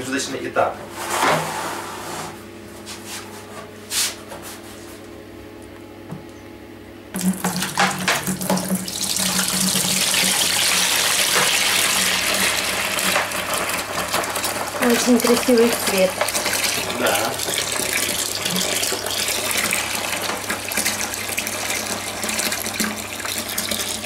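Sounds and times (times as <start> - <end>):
liquid gushing into bucket: 7.2 - 24.0.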